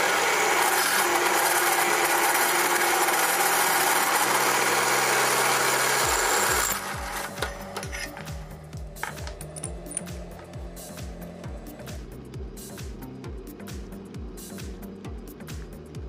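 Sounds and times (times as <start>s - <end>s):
drill bit grinding into steel: 0.0s - 10.5s.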